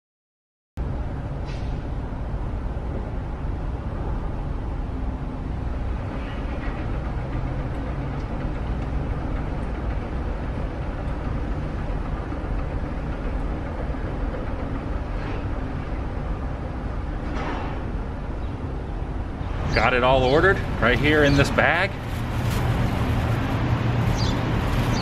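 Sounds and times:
restaurant room noise: 19.2 - 25.0.

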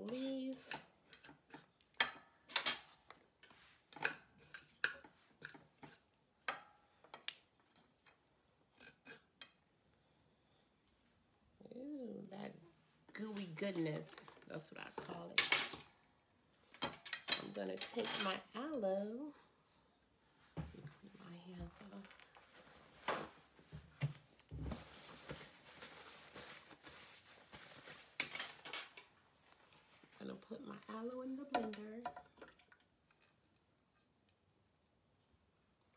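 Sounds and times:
dishes and utensils clattering: 28.2 - 29.1.

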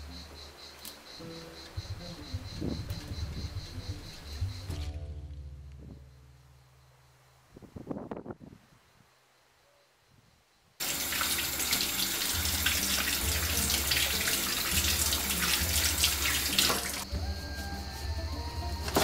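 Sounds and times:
background music with bass line: 1.2 - 7.0, 12.3 - 19.0
tap water splashing over hands: 10.8 - 17.0.

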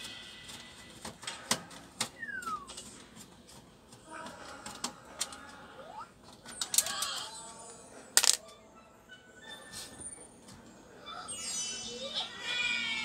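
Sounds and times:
hands handling computer parts: 8.2 - 8.4.

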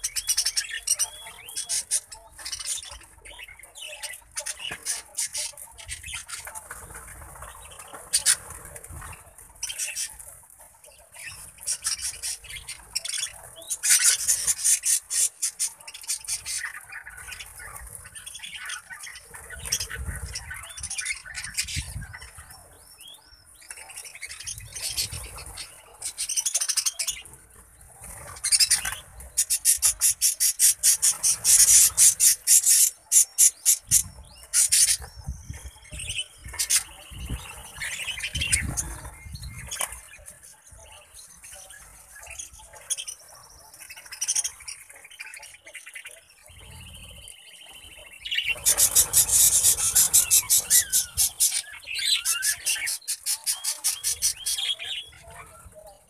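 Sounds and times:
budgerigars chattering and chirping: 0.0 - 56.0
wings fluttering: 48.4 - 51.6.

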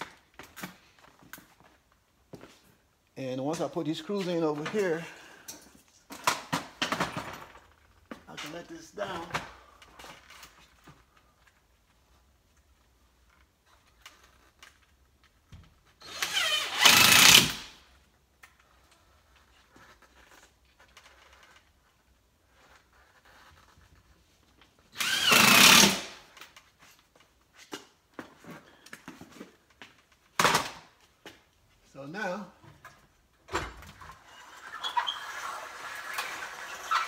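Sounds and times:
power drill driving screws: 16.0 - 17.8, 24.9 - 26.3.

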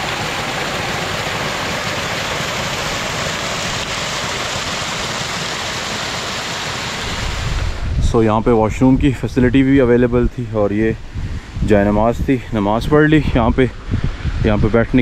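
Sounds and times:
stream rushing water: 0.0 - 8.0.

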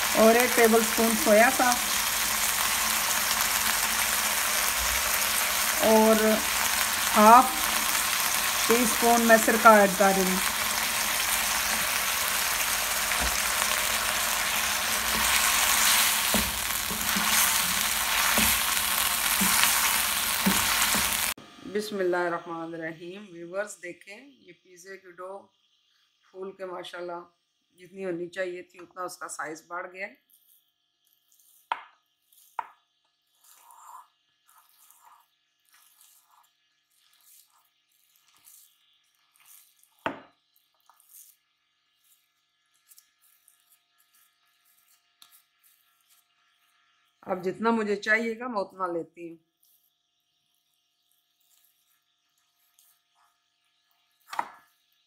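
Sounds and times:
chicken sizzling in a wok: 0.0 - 22.3, 30.8 - 48.3, 49.5 - 55.0
dough squishing: 30.3 - 46.7.

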